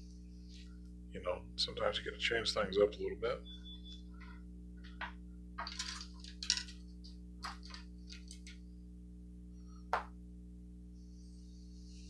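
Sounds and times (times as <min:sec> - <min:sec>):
low electrical hum: 0:00.0 - 0:12.0
small objects clicking and tapping: 0:04.8 - 0:08.6.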